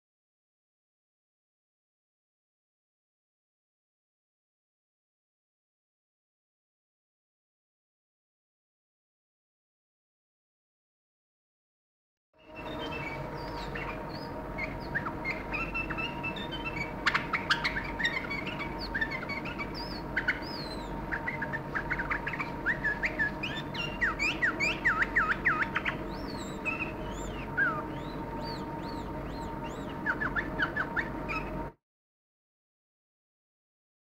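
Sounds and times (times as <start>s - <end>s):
bird chirping: 12.4s - 31.8s
steady background hum: 12.4s - 31.8s.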